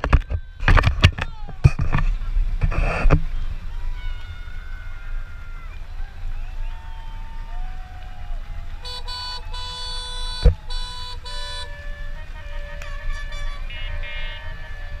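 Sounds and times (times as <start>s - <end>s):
boat horn blasts: 8.8s - 15.0s.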